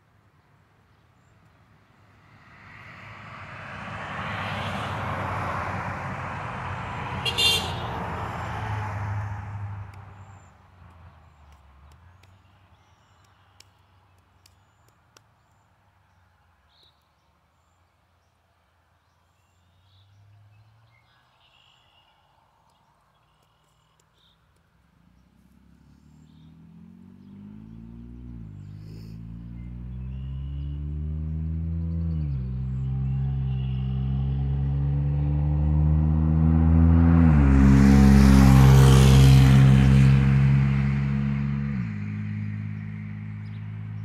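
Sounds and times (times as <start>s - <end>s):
road vehicle passing: 1.6s - 12.2s, 24.6s - 44.0s.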